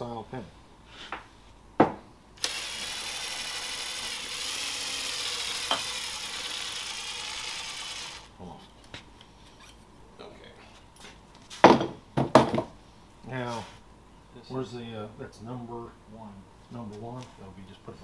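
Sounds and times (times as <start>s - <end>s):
cordless drill running: 2.4s - 8.4s.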